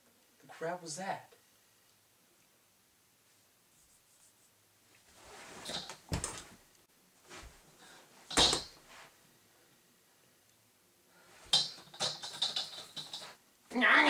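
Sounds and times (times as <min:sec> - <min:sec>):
bodies rustling on wooden bed: 0:05.0 - 0:06.6, 0:07.2 - 0:07.9.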